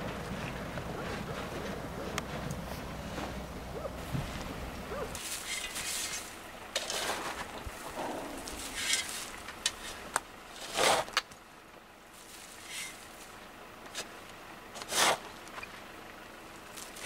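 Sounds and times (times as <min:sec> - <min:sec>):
spade scraping stones: 0:00.4 - 0:11.3, 0:12.1 - 0:13.3, 0:14.8 - 0:15.7.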